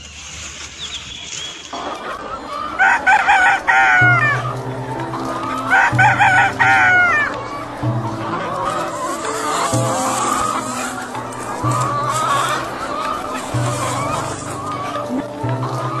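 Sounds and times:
background music with low notes: 2.6 - 16.0
rooster crowing: 2.8 - 4.6.

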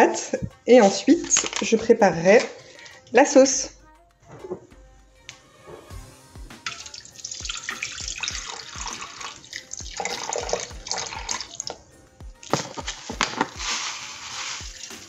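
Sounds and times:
water pouring into steel bowl: 6.6 - 11.8, 12.4 - 15.0.

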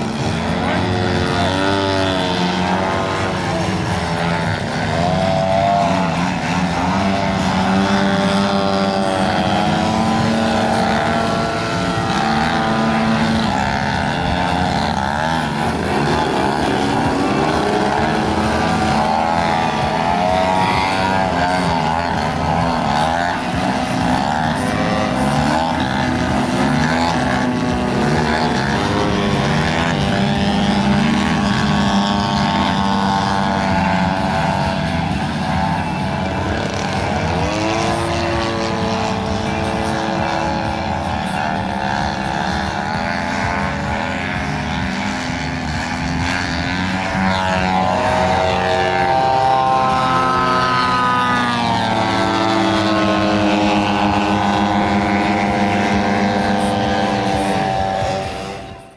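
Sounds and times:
model airplane engine: 0.0 - 58.9.

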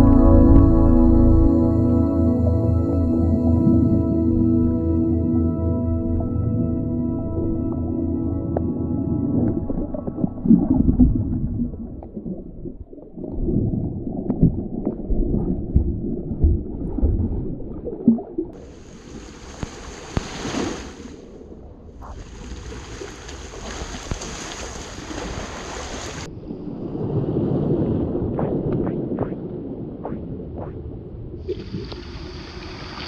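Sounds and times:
surf hiss: 18.6 - 21.2
wind buffeting microphone: 26.2 - 31.8.

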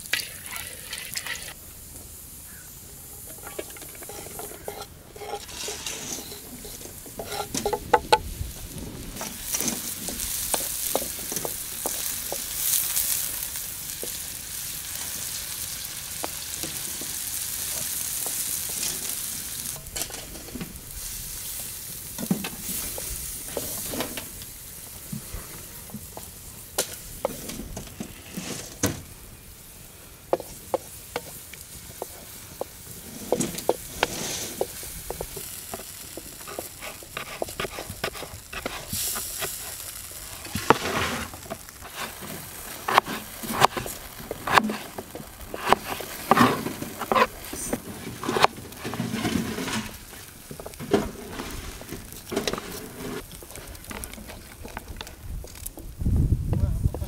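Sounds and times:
mushrooms sizzling in a pan: 0.0 - 56.0
wooden spatula knocking pan: 3.2 - 5.5, 6.6 - 8.3.

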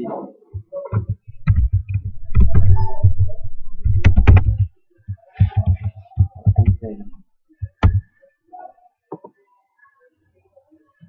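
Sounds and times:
keyboard typing knocks: 0.6 - 8.0.

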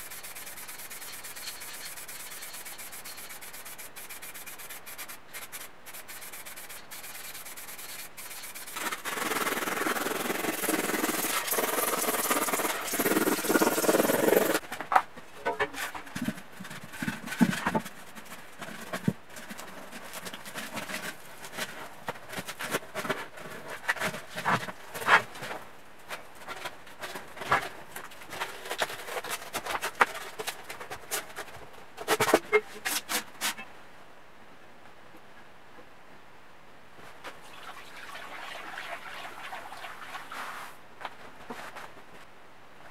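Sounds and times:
styrofoam rubbing and scraping: 0.0 - 14.6, 15.8 - 33.7.

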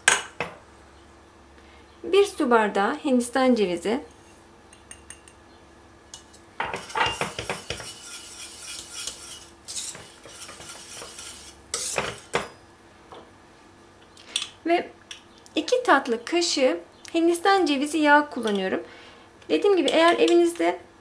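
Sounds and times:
whisk scraping a metal pot: 6.2 - 12.4.

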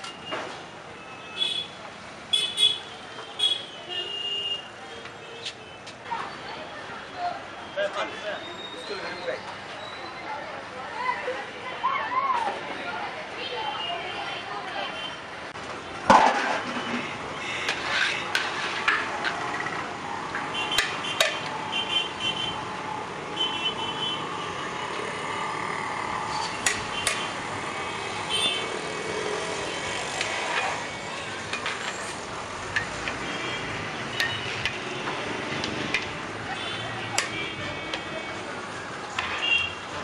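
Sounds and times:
steady background din: 5.7 - 40.0
metal ladle scraping a pot: 16.2 - 19.7.

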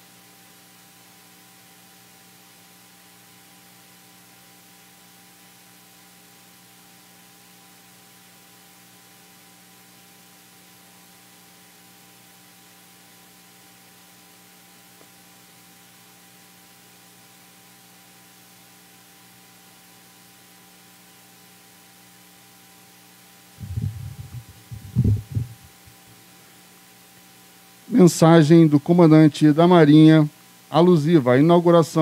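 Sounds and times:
electrical hum: 7.6 - 32.0
microphone handling thumps: 23.6 - 26.0.

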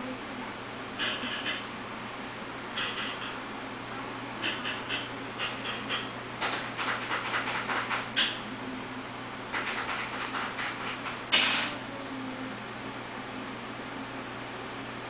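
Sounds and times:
steady low hum: 0.0 - 15.0
computer mouse scratching on desk: 6.8 - 8.0, 9.6 - 11.1.

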